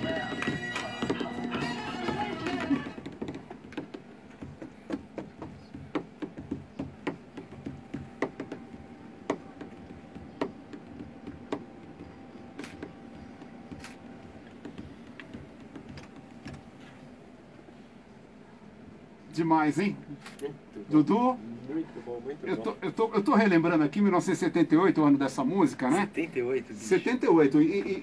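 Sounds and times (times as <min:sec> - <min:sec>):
sharp taps and knocks: 0:00.0 - 0:16.7.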